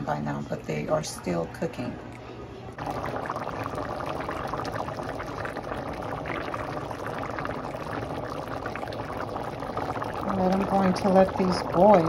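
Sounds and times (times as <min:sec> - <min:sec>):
thick sauce boiling and popping: 0:02.8 - 0:12.0.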